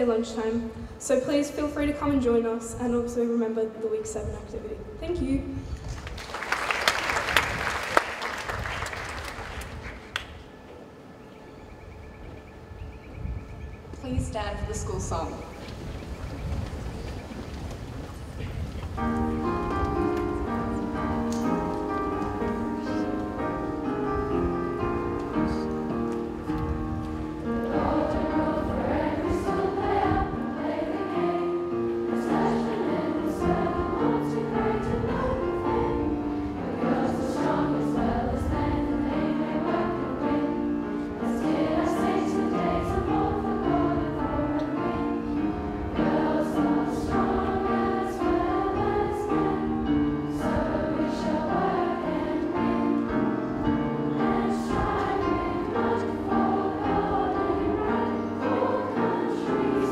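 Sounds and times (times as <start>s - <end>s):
piano accompaniment: 18.9s - 59.9s
girls choir singing: 19.4s - 59.9s.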